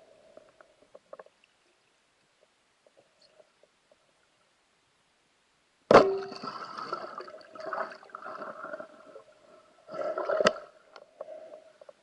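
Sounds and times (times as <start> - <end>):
underwater churning and bubbling: 6.2 - 12.0.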